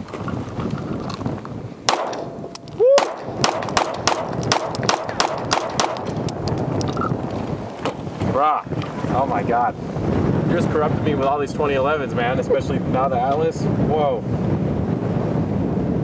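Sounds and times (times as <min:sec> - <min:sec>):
wind rumbling on microphone: 0:00.0 - 0:16.0
pistol shots: 0:01.9 - 0:06.4.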